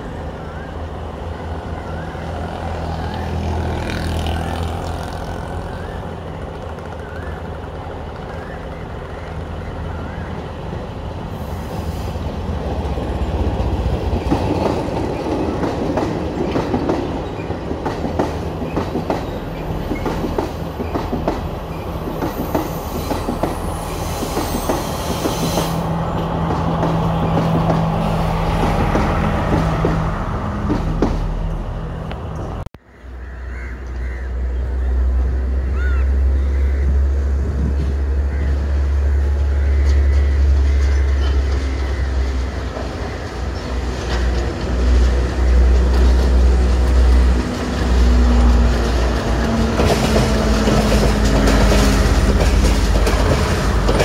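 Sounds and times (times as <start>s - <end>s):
diesel train engine droning: 34.0s - 54.0s
train wheels clattering over rail joints: 42.7s - 54.0s.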